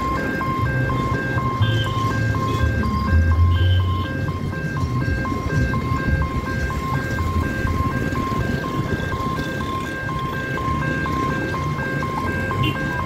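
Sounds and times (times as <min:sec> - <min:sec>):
vehicles running: 0:00.0 - 0:13.0
two-note warning beeping: 0:00.5 - 0:11.4.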